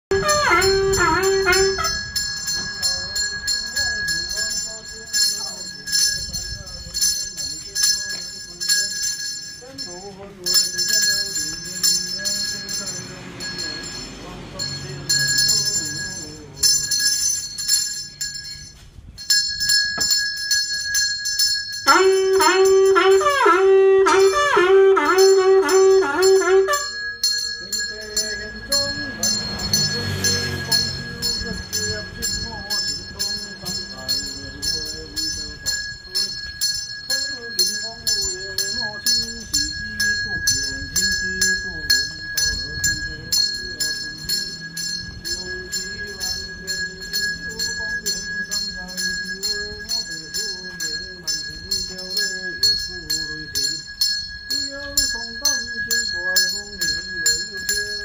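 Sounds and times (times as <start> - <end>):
man chanting: 0.1 - 2.2, 21.9 - 58.0
horn blowing held notes: 0.1 - 2.5, 21.8 - 27.3
hand bell ringing: 0.1 - 58.0.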